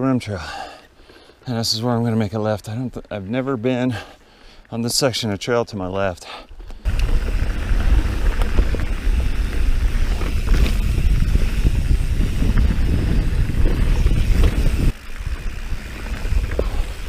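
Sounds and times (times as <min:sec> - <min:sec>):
bike clicks and rattles: 0:06.6 - 0:17.0
tyres rolling over dirt trail: 0:06.6 - 0:17.0
wind buffeting microphone: 0:06.9 - 0:17.0.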